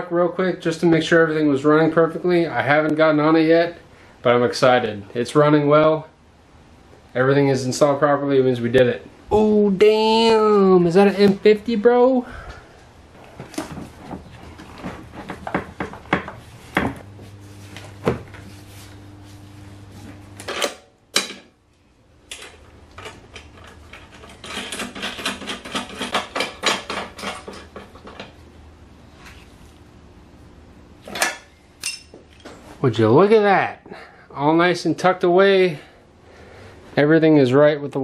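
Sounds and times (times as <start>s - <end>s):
low steady hum: 0.0s - 37.9s.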